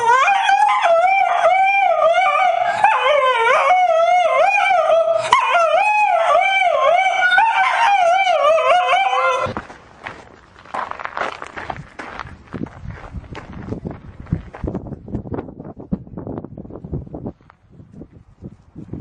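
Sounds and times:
dog howling: 0:00.0 - 0:09.6.

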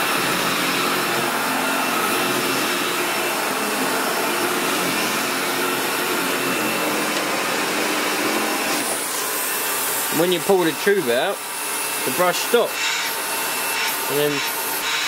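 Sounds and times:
upright vacuum cleaner running: 0:00.0 - 0:15.0.

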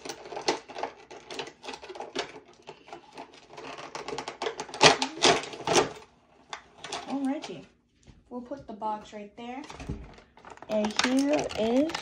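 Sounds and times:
plastic packaging crinkling: 0:09.7 - 0:12.0.

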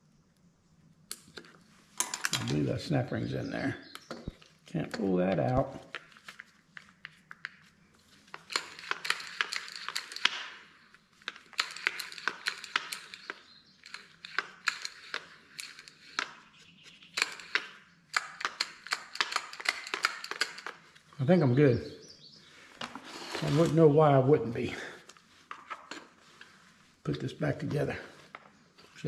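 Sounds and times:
plastic parts scraping: 0:01.4 - 0:21.2, 0:22.6 - 0:24.2, 0:25.0 - 0:26.9
chainsaw starter parts clicking: 0:08.3 - 0:10.6, 0:11.2 - 0:16.3, 0:17.2 - 0:21.1.

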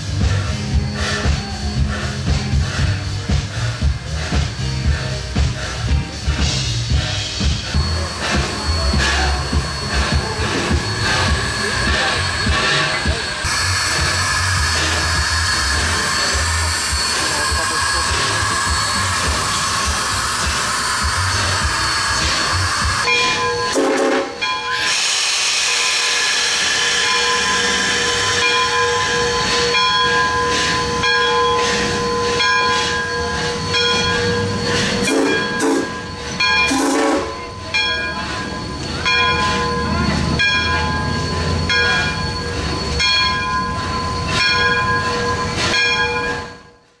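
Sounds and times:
rush of steam: 0:00.0 - 0:47.0
steam locomotive humming: 0:00.0 - 0:47.0.

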